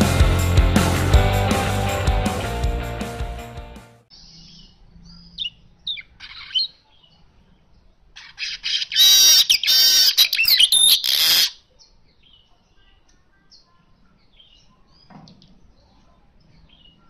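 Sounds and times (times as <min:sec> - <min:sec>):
bird chirping: 0:04.1 - 0:17.0
harsh buzzy bird song: 0:04.1 - 0:17.0.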